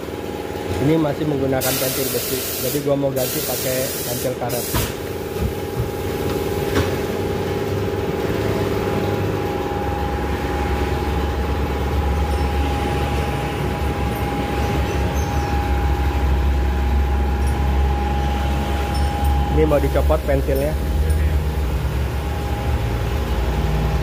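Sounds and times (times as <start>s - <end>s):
machine low rumble: 5.1s - 24.0s
high-pitched hum: 7.3s - 24.0s.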